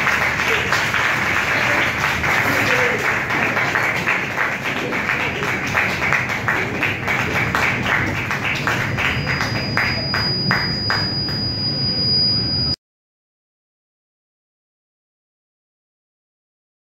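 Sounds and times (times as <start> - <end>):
audience applauding: 0.0 - 11.4
steady high tone: 0.0 - 12.8.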